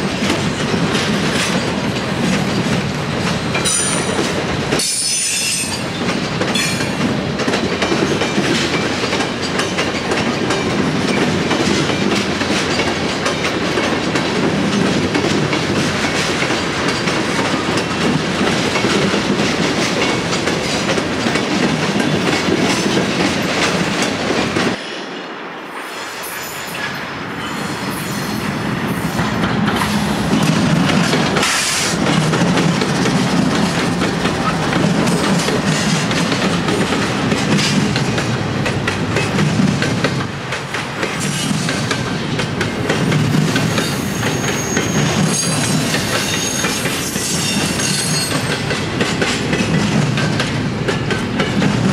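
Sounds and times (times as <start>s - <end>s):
freight train rolling on rails: 0.0s - 51.9s
wheels clicking over rail joints: 29.4s - 51.9s
high wheel squeals: 43.8s - 48.5s.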